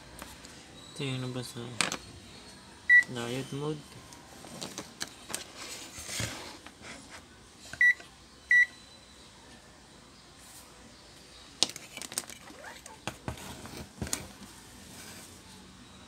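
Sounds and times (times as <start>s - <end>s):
multimeter high beeps: 2.9s - 3.2s, 7.8s - 9.2s.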